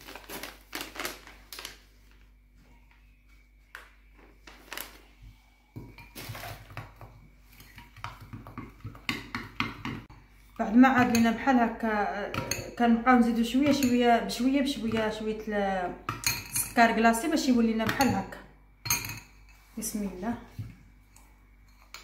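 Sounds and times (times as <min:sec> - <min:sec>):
spoon clinking in glass bowl: 0:16.1 - 0:16.8, 0:18.8 - 0:19.6.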